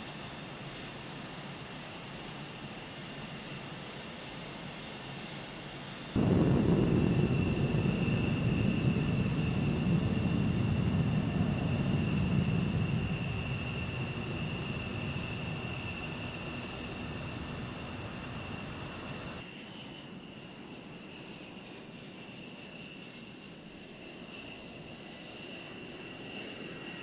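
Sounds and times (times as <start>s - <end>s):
jet engine whine: 0.0s - 27.0s
loud low rumble: 6.2s - 19.4s.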